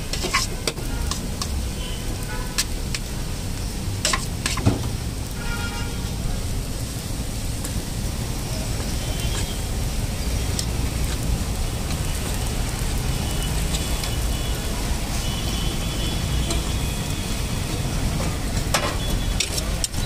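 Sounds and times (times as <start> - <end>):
metal spatula scraping griddle: 0.0 - 1.8, 4.0 - 4.8, 17.7 - 20.0.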